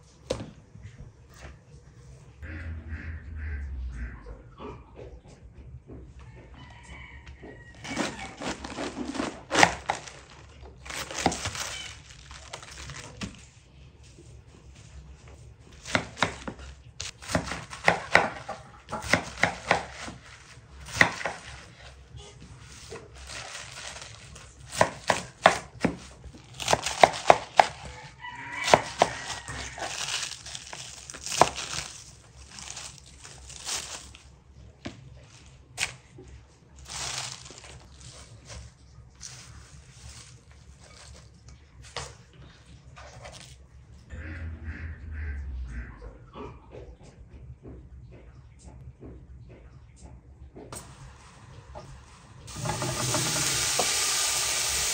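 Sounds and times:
rooster crowing: 0:06.2 - 0:08.6, 0:27.8 - 0:30.4
knife chopping on wooden board: 0:15.8 - 0:16.6, 0:17.2 - 0:21.7, 0:24.7 - 0:28.0, 0:28.6 - 0:30.0.

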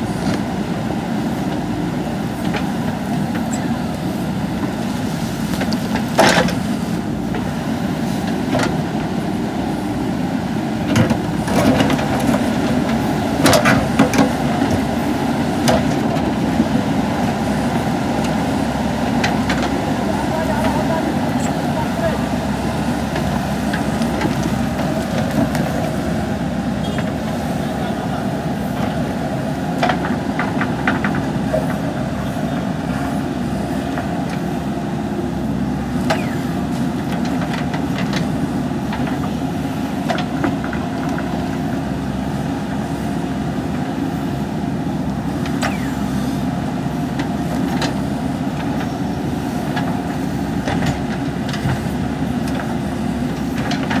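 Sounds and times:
diesel engine running under load: 0:00.0 - 0:54.0.

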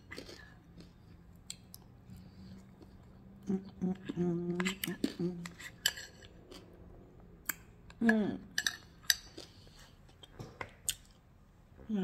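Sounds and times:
metal spoon scraping ceramic bowl: 0:05.4 - 0:06.4.

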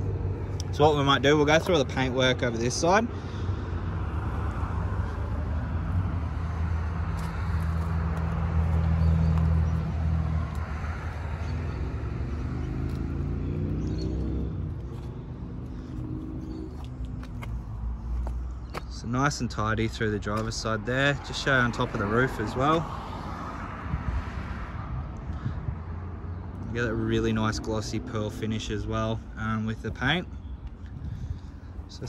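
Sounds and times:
vehicle engine humming: 0:00.0 - 0:24.0
vehicle accelerating: 0:03.4 - 0:18.4.

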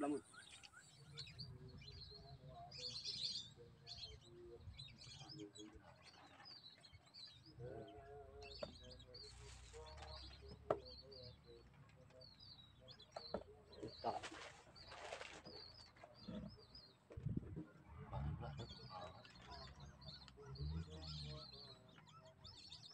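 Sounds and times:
lower repeated bird calls: 0:00.0 - 0:22.9
brief rustling: 0:14.1 - 0:16.2.

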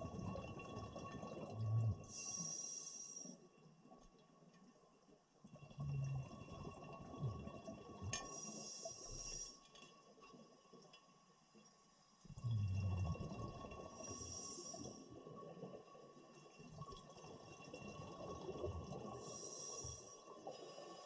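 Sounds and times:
exhaled bubbles rumbling underwater: 0:00.0 - 0:02.8, 0:05.5 - 0:09.4, 0:12.3 - 0:21.0
regulator hissing inhalations: 0:02.1 - 0:03.4.

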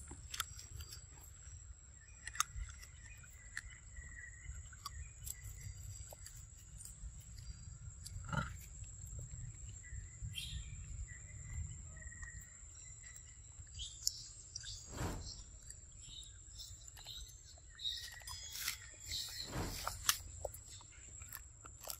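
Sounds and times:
insect drone: 0:17.8 - 0:20.9.

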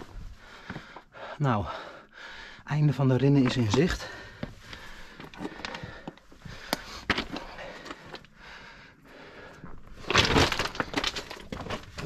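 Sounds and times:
heavy breathing: 0:00.0 - 0:02.8, 0:03.8 - 0:10.0.

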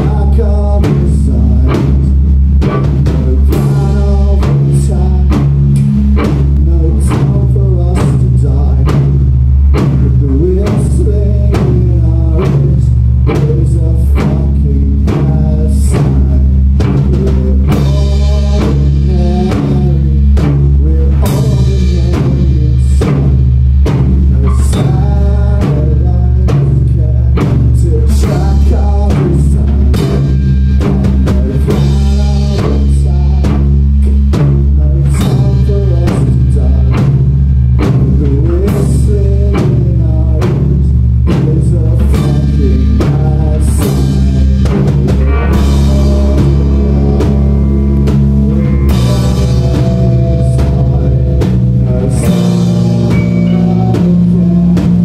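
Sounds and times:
bass guitar: 0:00.0 - 0:55.0
drum kit hits: 0:00.0 - 0:55.0
electric guitar: 0:00.0 - 0:55.0.

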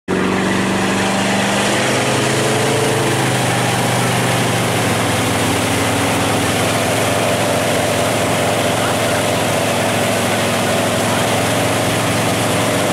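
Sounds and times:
boat engine running: 0:00.1 - 0:12.9
churning water: 0:00.1 - 0:12.9.

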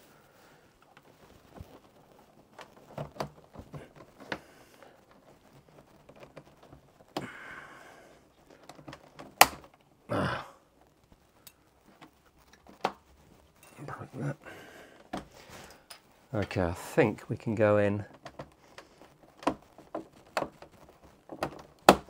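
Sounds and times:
pry tool scraping plastic: 0:18.0 - 0:22.0.

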